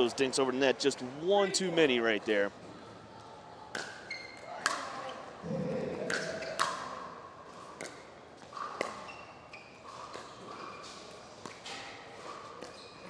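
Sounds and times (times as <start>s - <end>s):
sneaker squeaks: 3.7s - 5.4s, 6.2s - 6.9s, 7.6s - 13.0s
ball bouncing on hard court: 5.6s - 7.0s, 7.7s - 9.2s.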